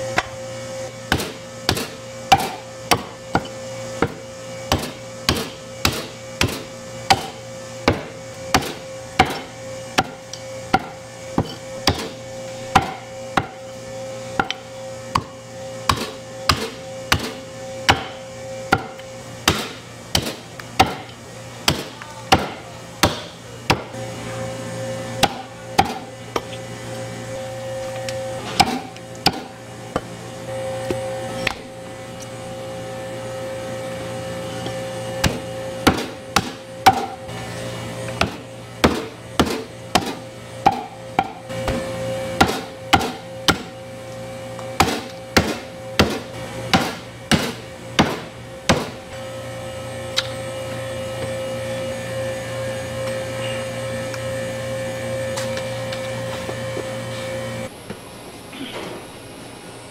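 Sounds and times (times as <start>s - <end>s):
steady hum: 0.0s - 59.9s
cleaver chopping meat on wood: 1.1s - 13.6s, 15.9s - 21.1s, 21.7s - 23.9s, 25.2s - 26.5s, 28.6s - 29.5s, 35.2s - 37.2s, 38.2s - 43.7s, 44.8s - 49.0s.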